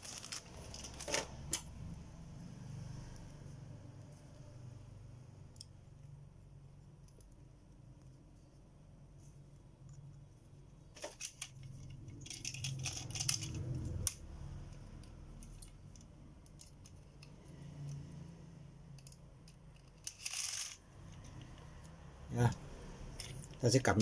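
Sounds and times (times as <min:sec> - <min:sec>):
plastic parts clicking and rattling: 0:00.0 - 0:01.7, 0:10.9 - 0:18.0, 0:18.9 - 0:21.8
plastic scraping: 0:00.0 - 0:01.7.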